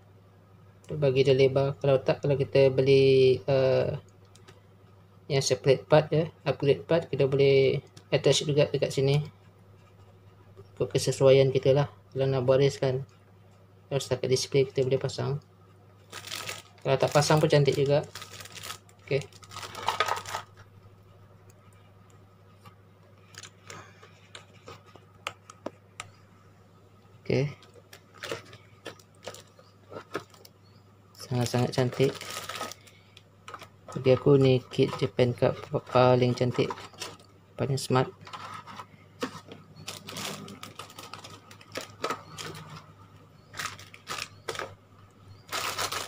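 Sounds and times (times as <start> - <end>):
plastic bags crinkling: 16.1 - 20.6, 27.6 - 30.5, 31.3 - 35.1, 39.8 - 42.8, 43.5 - 44.8, 45.5 - 46.0.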